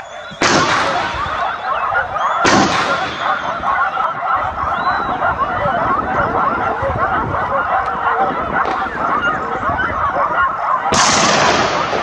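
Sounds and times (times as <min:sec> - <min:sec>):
gunshot with echo: 0:00.0 - 0:04.4, 0:10.9 - 0:12.0
hunting dogs baying and yelping: 0:00.0 - 0:12.0.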